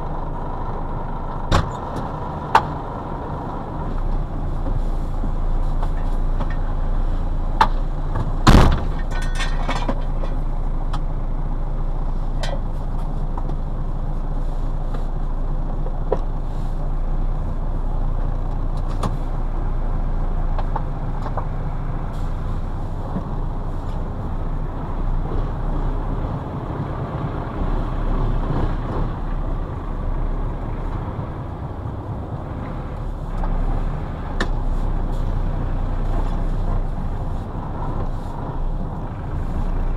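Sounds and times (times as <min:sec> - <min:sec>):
diesel engine running: 0:00.0 - 0:39.9
light clicks of cab controls: 0:03.9 - 0:06.8, 0:09.0 - 0:11.1, 0:12.3 - 0:16.6, 0:18.1 - 0:19.4, 0:20.4 - 0:24.1, 0:31.8 - 0:38.9.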